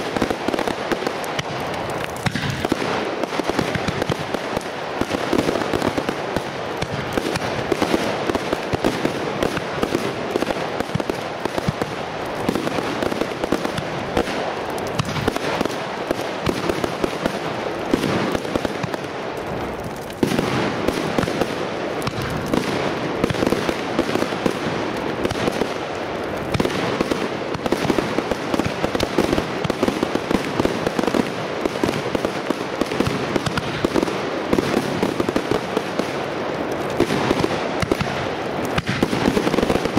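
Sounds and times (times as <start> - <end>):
aerial fireworks bangs and crackling: 0.0 - 39.9.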